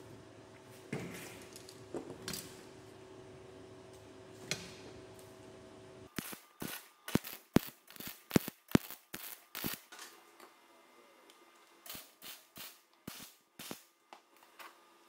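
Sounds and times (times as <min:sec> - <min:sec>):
steady hum: 0:00.0 - 0:09.8
welder arc crackling and popping: 0:06.1 - 0:10.0, 0:11.9 - 0:13.9.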